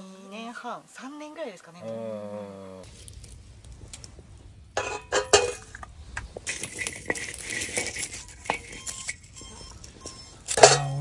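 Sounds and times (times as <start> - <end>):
rustling: 2.8 - 11.0
hard objects clinking and clattering: 2.9 - 11.0.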